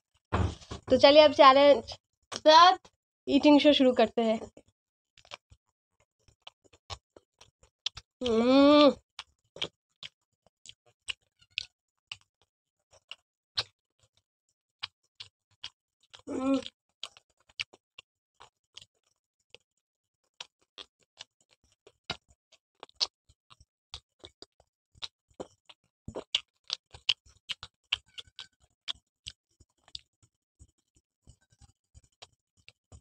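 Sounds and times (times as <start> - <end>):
pizza crunching and chewing: 5.2 - 5.6, 6.2 - 14.2, 14.8 - 19.6, 20.2 - 33.0.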